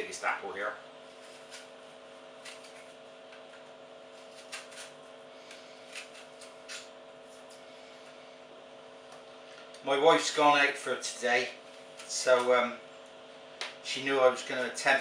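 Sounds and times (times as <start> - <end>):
steady low hum: 0.0 - 15.0
peeler scraping apple skin: 1.1 - 3.0, 4.1 - 7.7.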